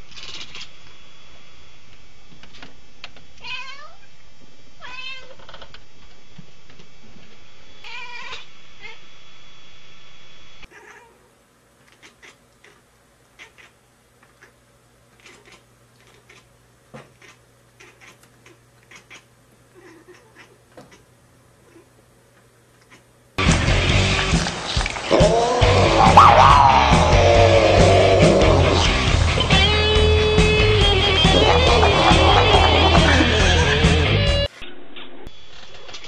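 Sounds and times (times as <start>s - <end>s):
cat meowing: 3.4s - 4.0s, 4.8s - 5.4s, 7.8s - 9.0s, 10.7s - 11.2s, 17.2s - 21.0s, 25.1s - 28.9s.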